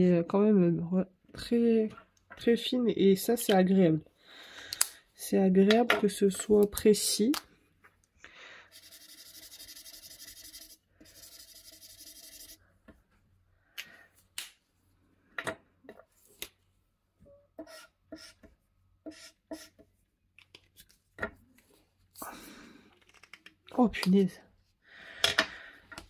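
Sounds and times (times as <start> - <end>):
marker scratching on paper: 8.7 - 12.6, 17.6 - 19.9.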